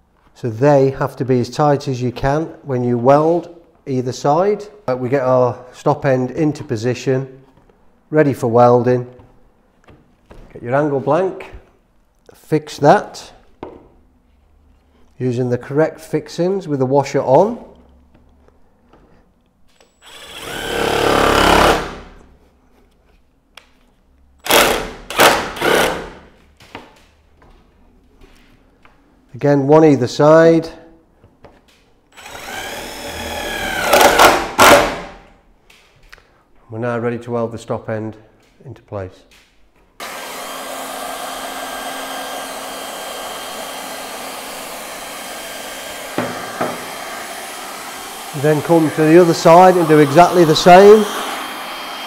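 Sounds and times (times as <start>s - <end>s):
cordless drill driving screw: 19.8s - 21.9s, 32.2s - 35.0s, 40.0s - 52.0s
hot-air welding gun blowing: 40.0s - 52.0s.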